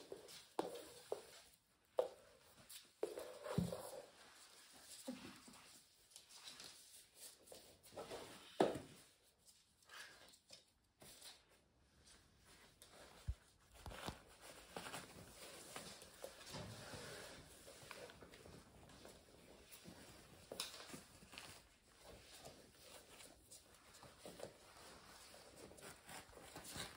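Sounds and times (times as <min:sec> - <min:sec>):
paws scuffling on floor: 0:00.0 - 0:26.9
fabric rustling: 0:12.0 - 0:26.9.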